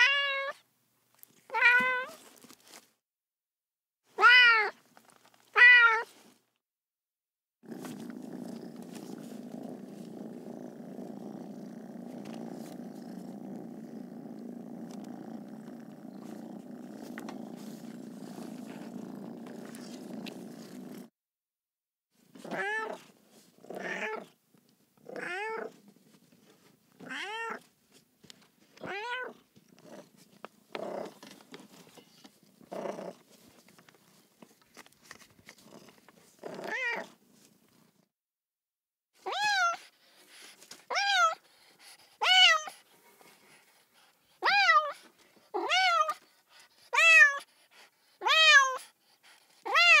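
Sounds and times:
cat meowing: 0.0 - 0.6, 4.2 - 4.8, 5.5 - 6.1, 39.3 - 39.8, 45.6 - 46.2, 48.2 - 48.8, 49.7 - 50.0
cat purring: 7.6 - 21.1, 29.3 - 34.2.

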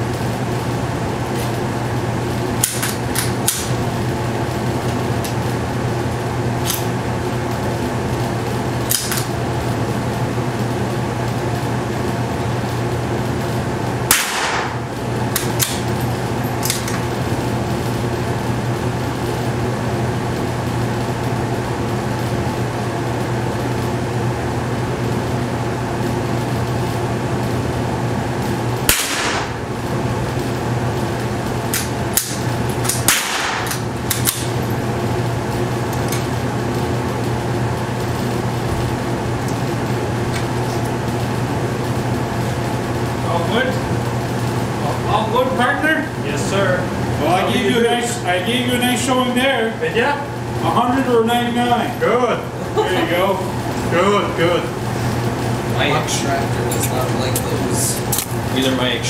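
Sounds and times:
ventilation hum: 0.0 - 59.0
rifle shots cracking: 14.1 - 14.8, 28.9 - 29.6, 32.2 - 34.5.

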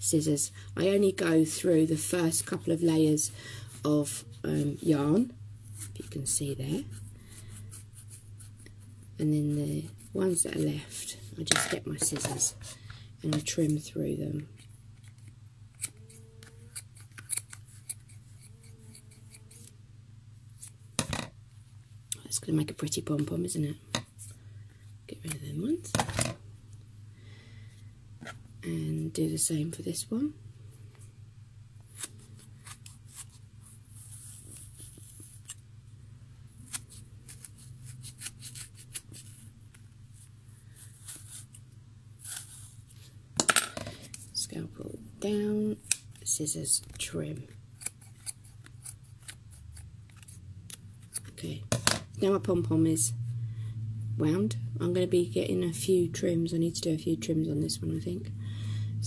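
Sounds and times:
steady low hum: 0.0 - 59.0
scissors snipping yarn: 14.6 - 19.7, 47.8 - 51.3.

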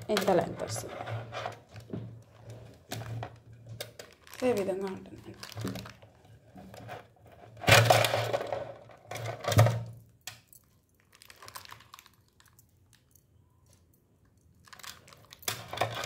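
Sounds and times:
beaded necklace rustling and clicking: 0.0 - 6.2, 10.0 - 16.0.

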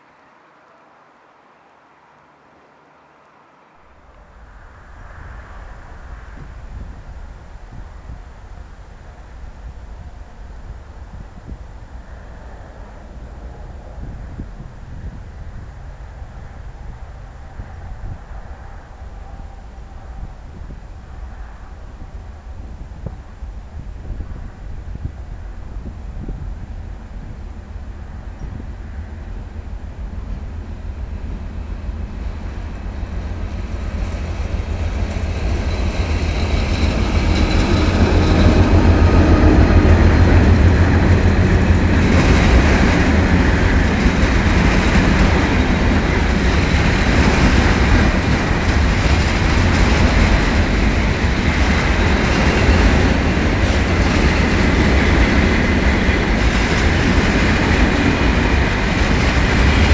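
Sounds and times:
diesel locomotive engine rumble: 0.0 - 59.9
train wagons rolling: 30.2 - 59.9.

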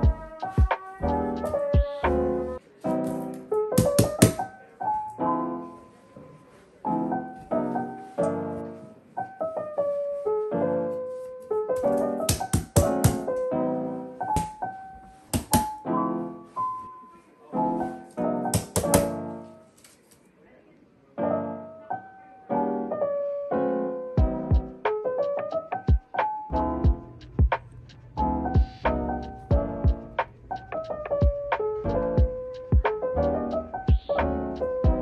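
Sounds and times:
soft solo piano music: 0.0 - 19.6, 21.2 - 35.0
palms slapping paper on wall: 3.0 - 4.6, 11.8 - 13.4, 14.3 - 14.6, 15.3 - 15.8, 18.5 - 19.2.

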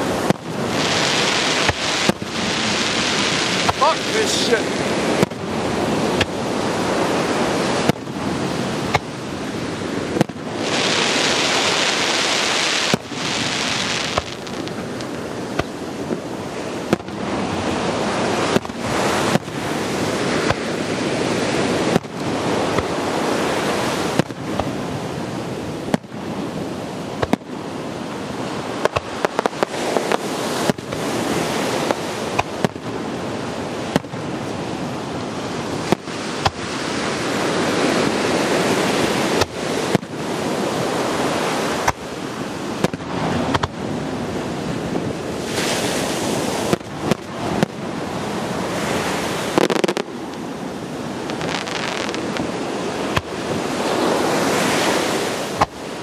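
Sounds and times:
loud fireworks hissing: 0.0 - 26.2, 28.6 - 33.0, 49.3 - 50.2, 51.2 - 55.8
fireworks bangs: 0.0 - 34.6, 35.7 - 43.9, 46.6 - 47.9, 48.9 - 56.0
continuous rushing noise: 0.0 - 56.0.

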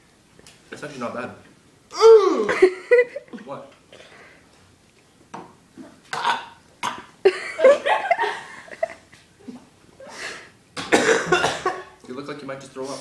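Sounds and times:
person gagging and retching: 1.9 - 2.6, 5.8 - 7.2.

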